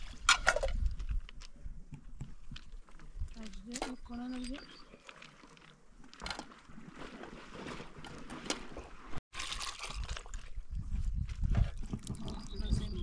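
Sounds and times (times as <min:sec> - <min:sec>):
liquid sloshing and trickling: 0:03.3 - 0:12.9.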